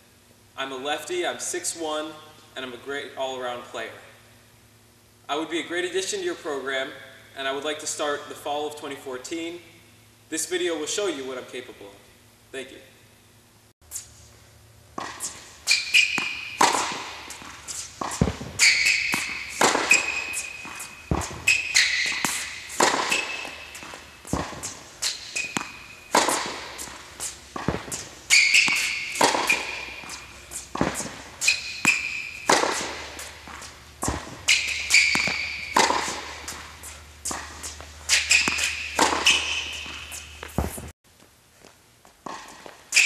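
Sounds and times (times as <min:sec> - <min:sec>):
racket hitting tennis ball: 0:14.9 - 0:40.9
tennis ball bouncing: 0:14.9 - 0:40.9
sneakers squeaking on court: 0:15.0 - 0:40.9.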